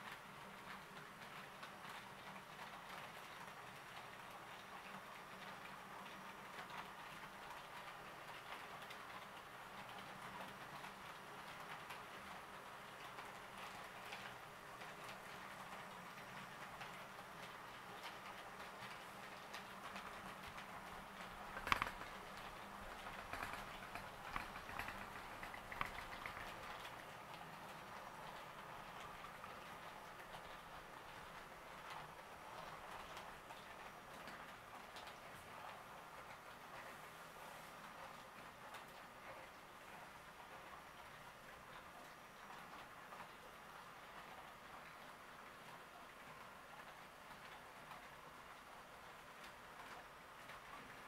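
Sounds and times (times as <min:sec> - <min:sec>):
model train wheels clicking: 0:00.0 - 0:35.3.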